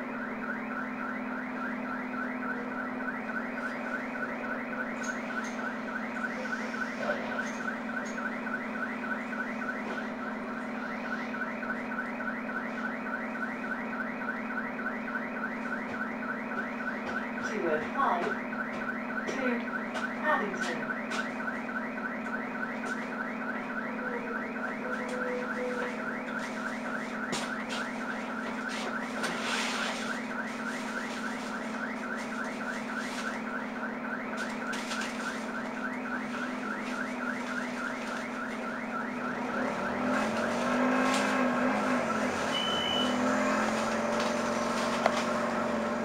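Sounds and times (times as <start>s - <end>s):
rising electronic alarm chirps: 20.5s - 46.0s
bus engine pulling away: 39.3s - 46.0s.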